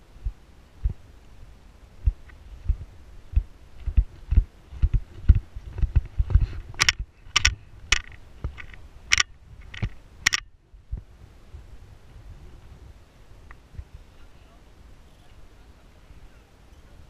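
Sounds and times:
sharp clicks: 6.7s - 10.5s.

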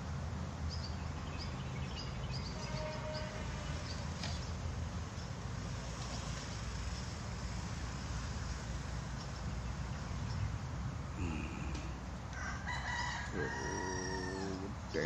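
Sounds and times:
low rumble and hiss: 0.0s - 15.0s
rooster crowing: 12.3s - 14.7s.

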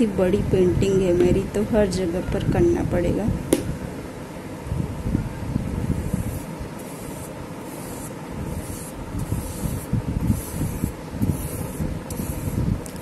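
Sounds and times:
paintbrush brushing on surface: 5.9s - 12.6s.

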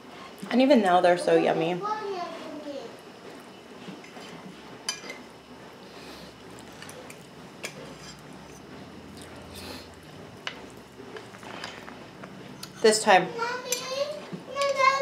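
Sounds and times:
fork scraping on plate: 6.6s - 12.0s.

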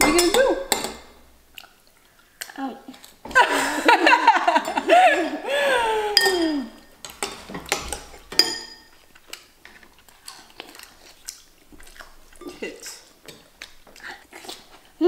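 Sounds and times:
woman laughing loudly: 3.3s - 6.7s
spoon clinking against bowl: 6.2s - 9.0s, 12.4s - 13.5s.

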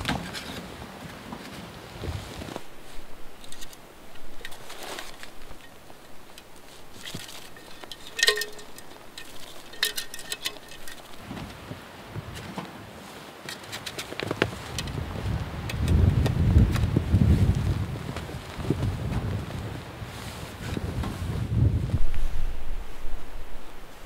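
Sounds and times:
metal pipes clinking and scraping: 3.4s - 11.3s.

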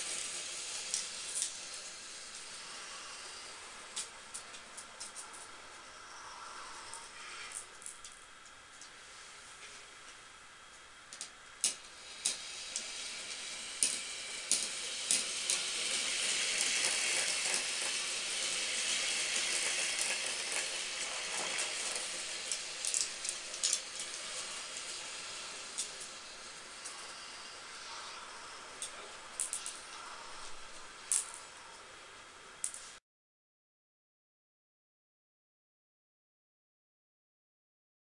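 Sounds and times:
marbles clicking against track: 0.0s - 2.5s, 11.1s - 27.7s, 28.7s - 29.9s, 31.1s - 31.5s
marbles rolling on plastic track: 0.0s - 5.2s, 11.1s - 31.5s.

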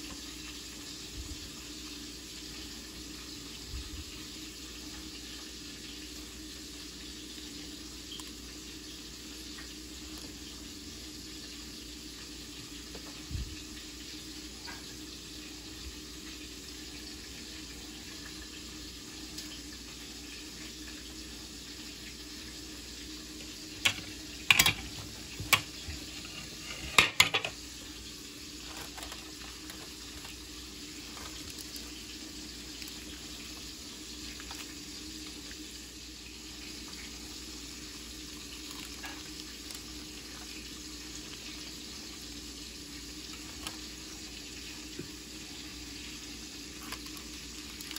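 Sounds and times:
aluminium foil crinkling: 25.7s - 35.8s, 36.9s - 42.2s, 46.6s - 47.9s.

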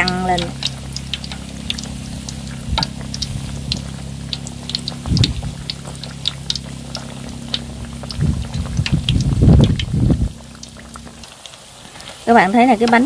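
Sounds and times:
fritters deep-frying in oil: 0.0s - 13.0s
low steady hum: 0.0s - 13.0s
low thuds: 2.4s - 5.9s.

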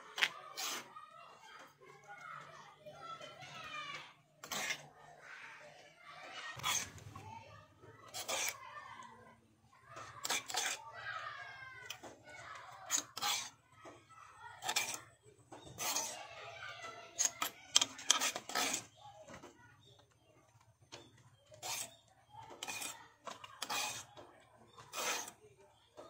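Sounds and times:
metal spoon scraping stone mortar: 0.1s - 0.9s, 4.4s - 5.0s, 6.5s - 7.2s, 8.1s - 8.6s, 10.0s - 10.8s, 12.8s - 13.6s, 14.6s - 16.2s, 17.1s - 19.0s, 21.0s - 25.4s.

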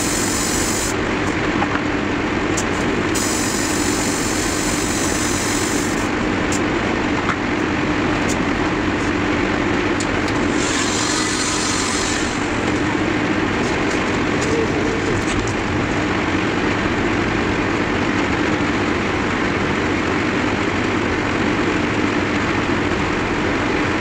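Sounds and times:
airbrush compressor running: 0.0s - 16.5s.

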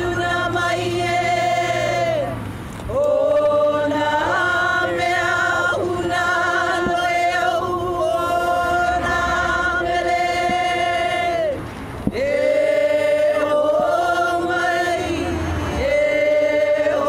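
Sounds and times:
group of voices chanting: 0.0s - 17.0s.

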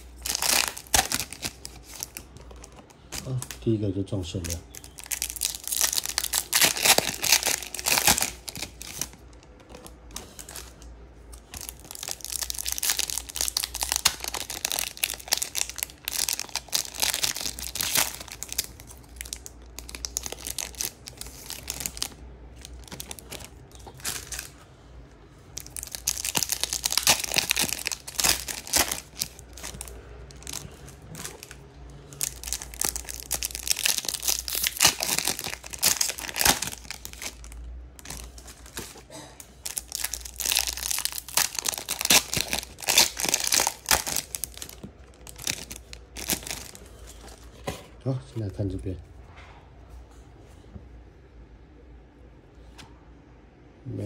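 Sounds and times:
foil wrappers tearing and crinkling: 0.0s - 2.4s, 4.3s - 9.2s, 11.6s - 24.5s, 25.6s - 46.8s.

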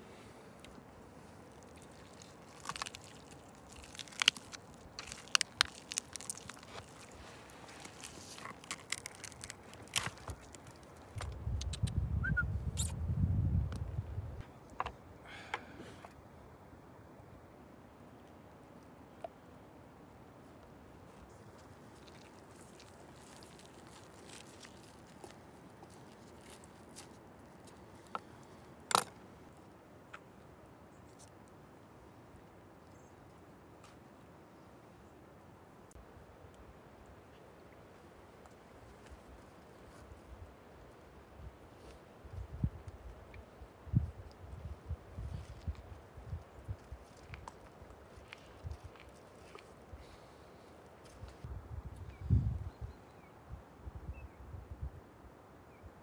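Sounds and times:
soft tearing and squishing: 0.6s - 11.9s, 21.0s - 29.2s, 41.7s - 51.5s.

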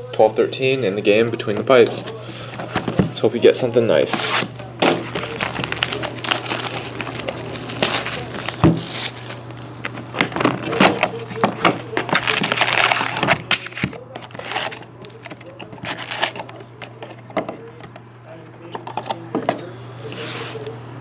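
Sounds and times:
cellophane crinkling and tearing: 4.2s - 17.3s.

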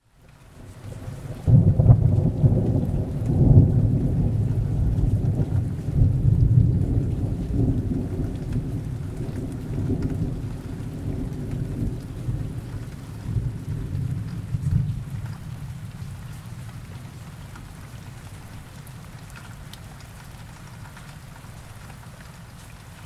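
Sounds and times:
rain falling: 0.0s - 23.0s
rolling thunder rumble: 1.2s - 17.2s.

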